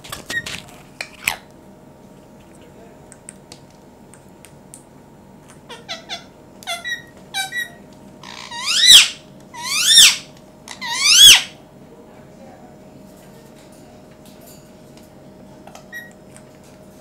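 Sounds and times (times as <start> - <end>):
parakeet chirping: 5.7 - 11.5
loud parakeet calls: 5.7 - 11.6.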